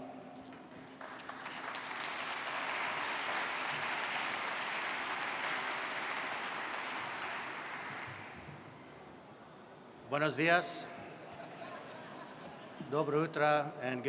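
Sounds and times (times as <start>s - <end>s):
audience applauding: 0.7s - 8.7s.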